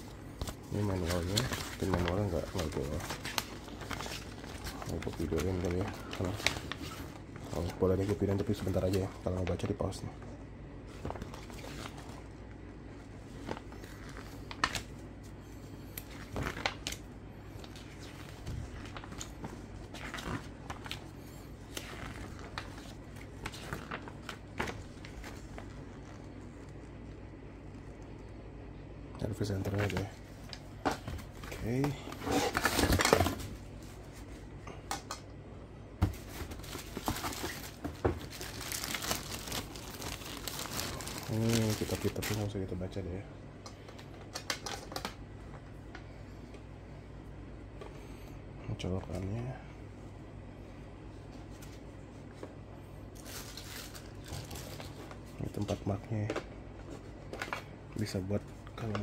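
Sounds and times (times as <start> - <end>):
paper pages rustling: 0.1 - 9.7, 10.9 - 12.3, 13.3 - 26.9, 36.1 - 42.6
plastic bag crinkling: 0.5 - 9.6, 36.6 - 42.7, 53.2 - 55.0
hands rummaging in cardboard box: 36.1 - 42.4.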